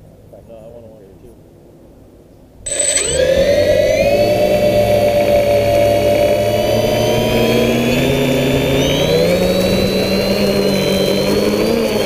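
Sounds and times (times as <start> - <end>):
drone motors whining: 2.7 - 12.0.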